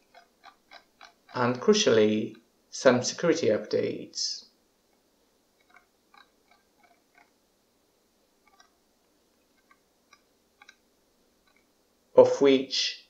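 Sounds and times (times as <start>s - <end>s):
mouse scroll wheel clicks: 5.6s - 7.3s, 8.5s - 8.7s, 9.6s - 10.8s, 11.4s - 11.7s.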